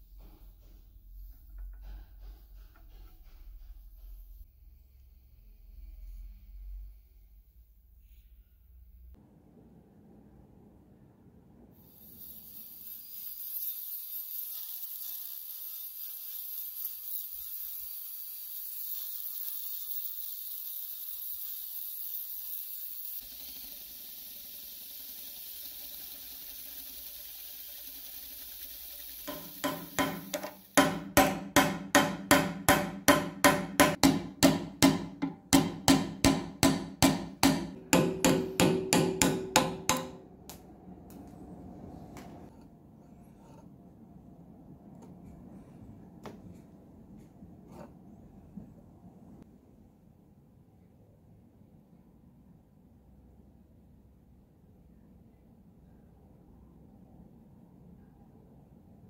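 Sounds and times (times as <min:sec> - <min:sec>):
hammer striking metal: 0:29.3 - 0:40.4.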